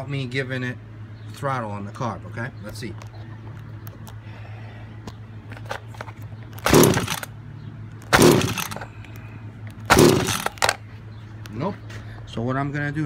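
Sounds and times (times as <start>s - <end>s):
small engine pull-start cranking: 6.6s - 7.3s, 8.0s - 8.9s, 9.9s - 10.8s.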